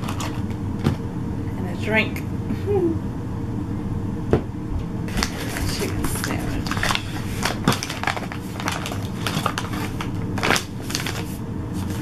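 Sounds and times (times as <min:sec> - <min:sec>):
paper bag rustling and crinkling: 0:05.1 - 0:12.0.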